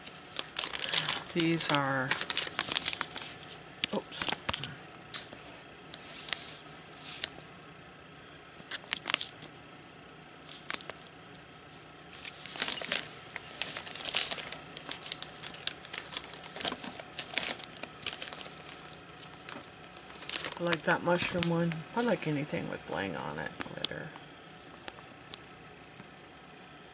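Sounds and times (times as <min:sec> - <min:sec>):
plastic sleeves crinkling: 0:00.0 - 0:07.4, 0:08.5 - 0:09.6, 0:10.4 - 0:22.3.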